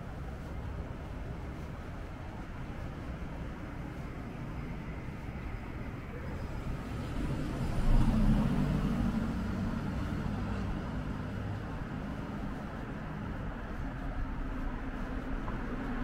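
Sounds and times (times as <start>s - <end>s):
low hum of traffic: 0.0s - 16.0s
vehicle passing close: 7.0s - 11.2s.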